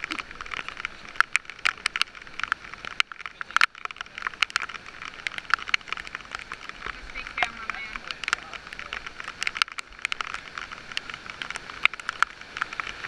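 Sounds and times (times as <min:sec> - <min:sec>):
raindrops tapping on camera housing: 0:00.0 - 0:13.0
steady hiss: 0:00.0 - 0:13.0.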